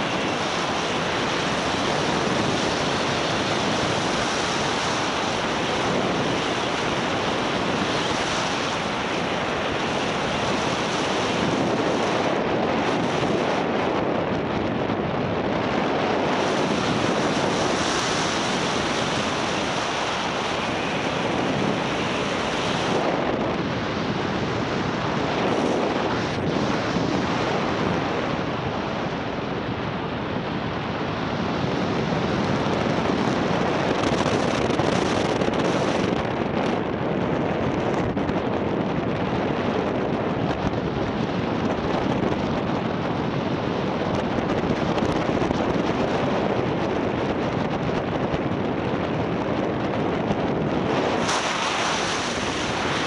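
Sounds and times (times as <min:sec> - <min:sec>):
wind rushing over microphone: 0:00.0 - 0:53.0.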